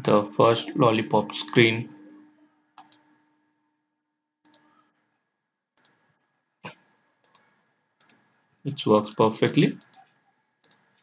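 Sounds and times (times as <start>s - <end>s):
computer mouse clicks: 2.8s - 3.1s, 4.4s - 4.7s, 5.8s - 6.0s, 7.2s - 8.2s, 9.0s - 11.0s.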